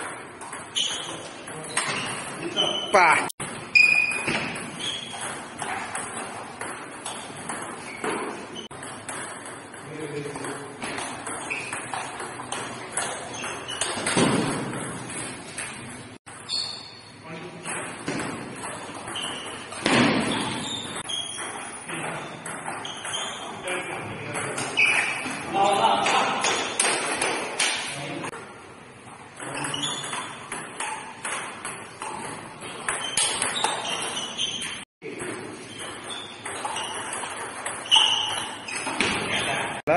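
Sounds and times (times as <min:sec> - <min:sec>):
ping pong ball clicking off paddles: 0:35.3 - 0:39.1.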